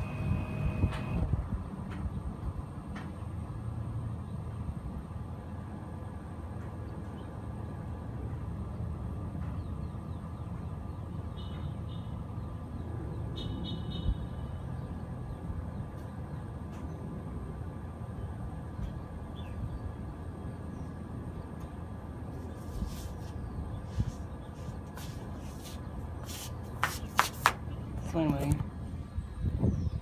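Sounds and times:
air conditioner unit running: 0:00.0 - 0:03.6.

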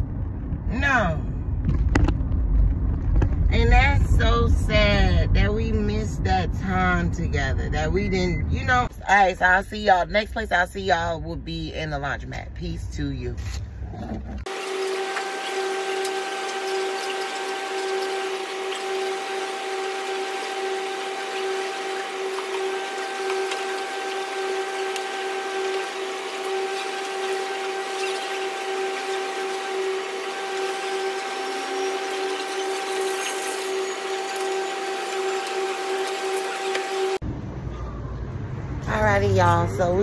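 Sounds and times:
laundry machines humming: 0:14.3 - 0:40.0.

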